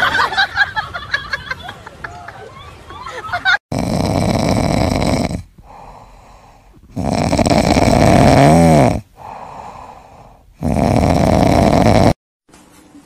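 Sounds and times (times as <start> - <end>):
cat snoring: 3.7 - 12.2.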